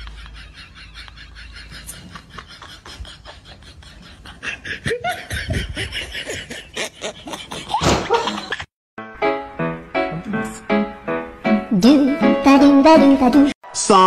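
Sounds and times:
people laughing: 0:00.0 - 0:08.7.

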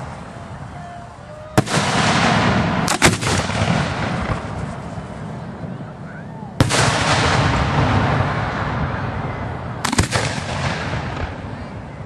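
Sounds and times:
sharp firework bangs: 0:01.5 - 0:05.7, 0:06.6 - 0:11.8
firework shells exploding: 0:01.5 - 0:05.8, 0:06.6 - 0:11.9.

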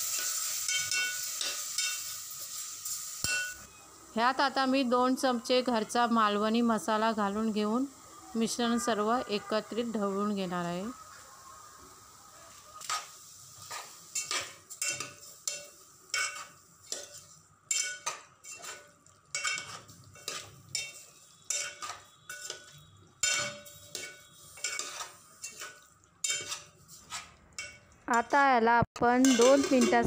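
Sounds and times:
spoon clinking and scraping pot: 0:00.0 - 0:03.7, 0:12.8 - 0:28.5, 0:29.1 - 0:30.0.

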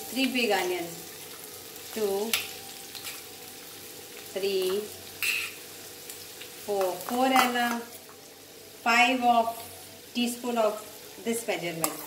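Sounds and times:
onions sizzling in oil: 0:00.0 - 0:12.0
spoon clicking on pan: 0:05.2 - 0:05.6, 0:11.8 - 0:12.0.

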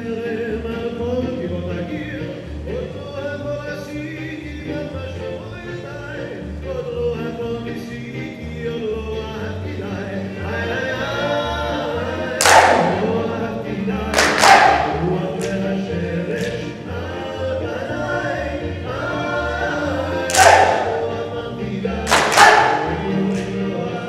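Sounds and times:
upbeat folk dance song: 0:00.0 - 0:24.0
sharp clap-like hits: 0:12.4 - 0:13.2, 0:14.1 - 0:15.7, 0:20.3 - 0:21.1, 0:22.1 - 0:23.5.

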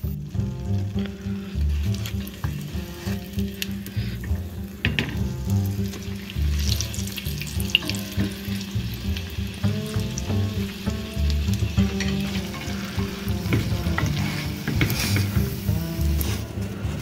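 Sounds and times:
soft background music: 0:00.0 - 0:17.0
oil sizzling in a pan: 0:00.4 - 0:16.5
wooden spatula knocking pan: 0:04.2 - 0:15.7.

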